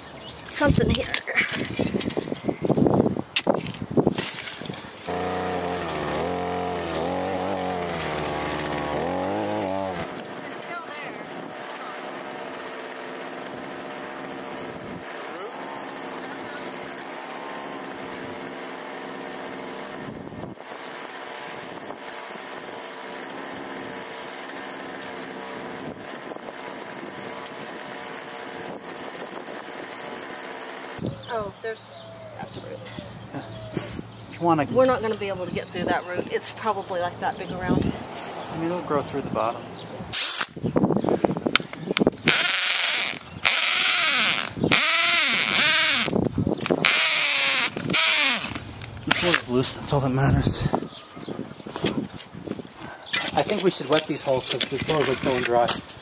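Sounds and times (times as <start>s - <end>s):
cordless drill grinding into soil: 0.2s - 31.1s, 37.4s - 56.0s
earth auger motor running: 3.6s - 31.4s, 41.0s - 50.0s, 50.9s - 56.0s.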